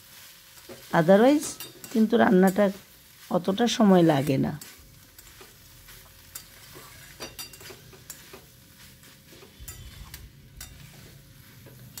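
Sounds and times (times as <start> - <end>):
faint sizzle: 0.0 - 12.0
spatula scraping metal pan: 4.0 - 12.0
clinks against pan: 7.2 - 8.5.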